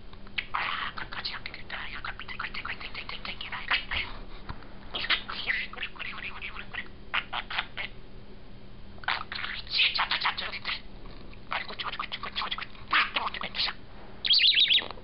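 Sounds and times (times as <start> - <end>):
budgerigar chattering: 0.4 - 4.1, 5.0 - 8.0, 9.0 - 10.9, 11.5 - 14.9.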